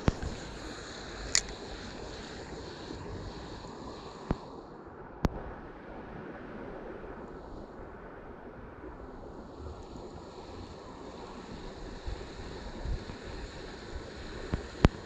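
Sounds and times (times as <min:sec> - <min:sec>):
light water noise: 0:00.0 - 0:15.0
wind: 0:00.0 - 0:15.0
fishing reel clicks: 0:01.2 - 0:01.6.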